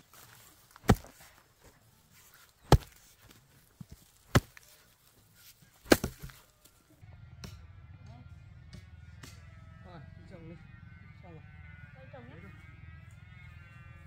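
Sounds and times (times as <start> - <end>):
heavy chopping blows: 0.1 - 5.0, 5.8 - 6.5.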